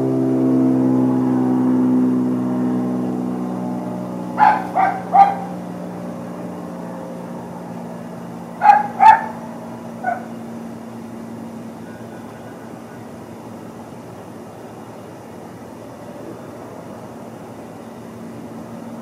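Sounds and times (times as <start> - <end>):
engine hum: 0.0 - 19.0
animal barking: 4.3 - 5.7, 8.6 - 9.4, 10.0 - 10.4.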